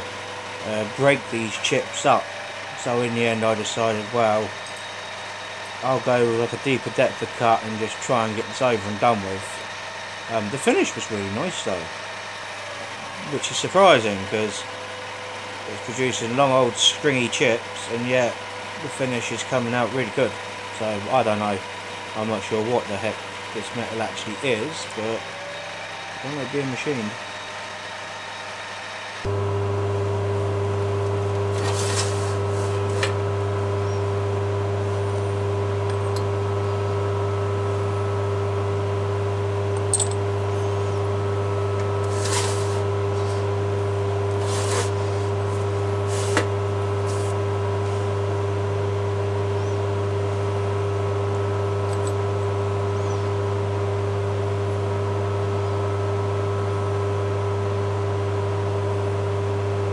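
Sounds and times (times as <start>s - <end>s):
electric motor humming: 0.0s - 59.9s
metal tools clinking in drawer: 39.9s - 40.2s.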